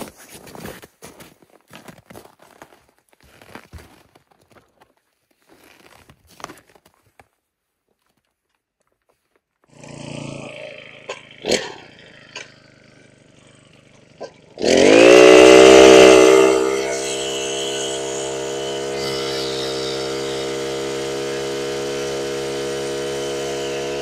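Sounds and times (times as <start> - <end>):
ice auger engine idling and revving: 9.7 - 24.0.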